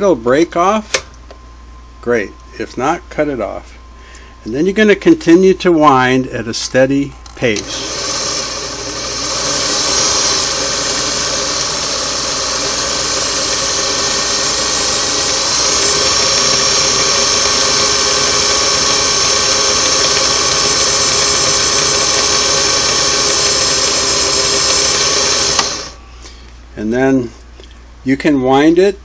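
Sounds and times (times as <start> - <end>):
sewing machine running: 7.6 - 26.0.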